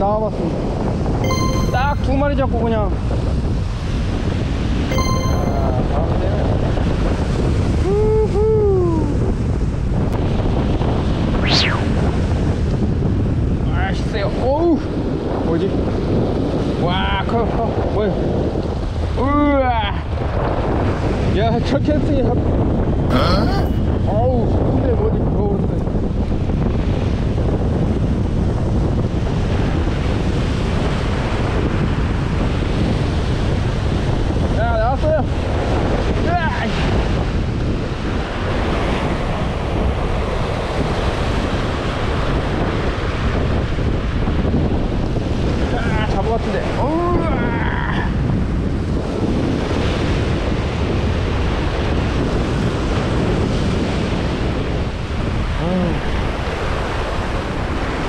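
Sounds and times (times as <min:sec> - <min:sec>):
wind buffeting microphone: 0:05.8 - 0:23.1, 0:23.8 - 0:58.0.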